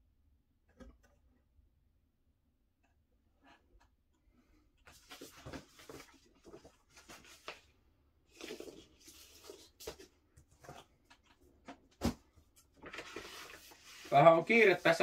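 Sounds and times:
paper sleeves rustling: 8.3s - 11.0s, 12.7s - 15.0s.

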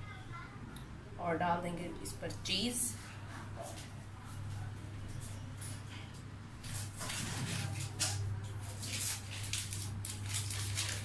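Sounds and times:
steady low hum: 0.0s - 11.0s
scratchy kitchen rustles: 2.9s - 11.0s.

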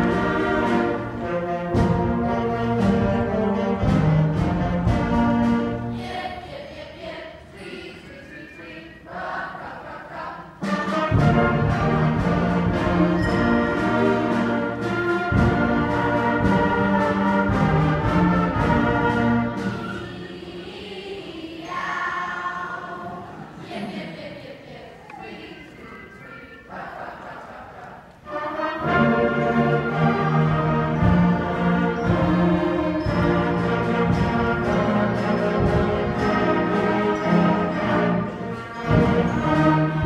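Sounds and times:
concert band playing: 0.0s - 6.0s, 10.6s - 20.2s, 28.3s - 40.0s.

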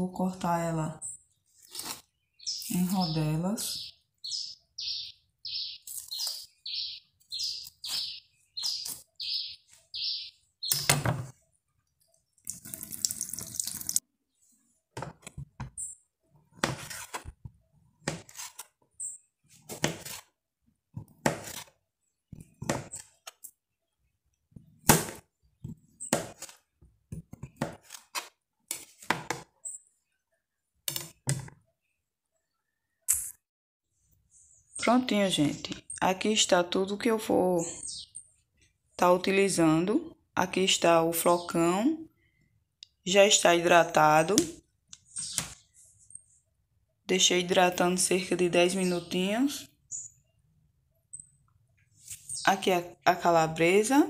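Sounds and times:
bird chirping: 0.7s - 12.5s, 15.7s - 16.2s, 18.9s - 19.4s, 34.0s - 38.5s, 40.6s - 41.9s, 45.0s - 46.4s, 47.2s - 52.8s.

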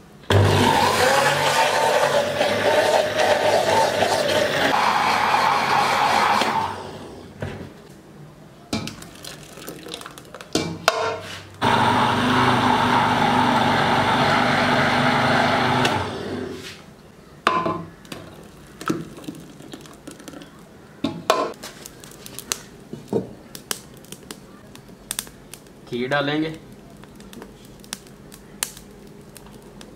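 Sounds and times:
electric blender grinding: 0.3s - 7.2s, 11.6s - 16.6s.

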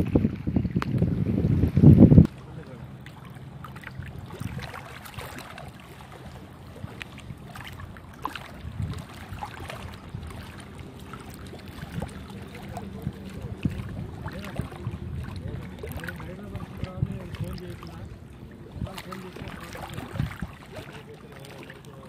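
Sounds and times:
wind on microphone: 0.0s - 2.7s, 3.7s - 21.1s
steady low hum: 0.0s - 22.0s
waves lapping against rocks: 0.0s - 22.0s
small splashes and clicks: 0.7s - 1.1s, 2.2s - 18.1s.

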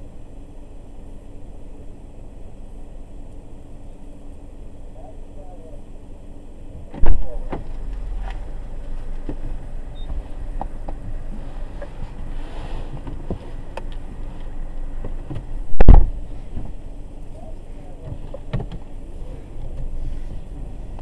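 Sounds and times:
low rumble inside car: 0.0s - 21.0s
heavy thump: 15.0s - 16.8s.

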